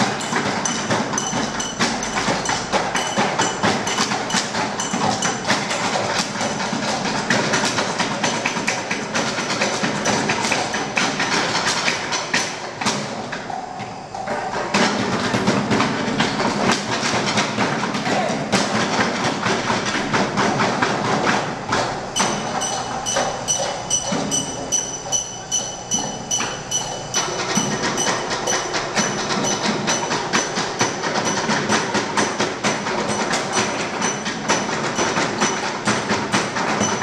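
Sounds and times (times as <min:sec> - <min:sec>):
knocks and taps on desks and objects: 0:14.2 - 0:37.0.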